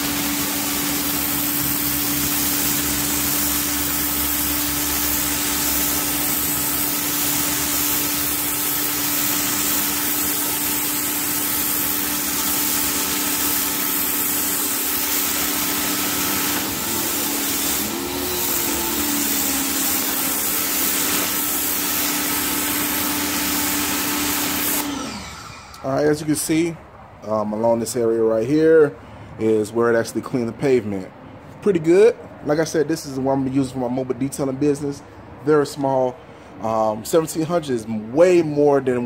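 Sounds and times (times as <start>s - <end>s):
water spray hissing on concrete: 0.0s - 24.8s
pressure washer motor hum: 0.0s - 26.2s.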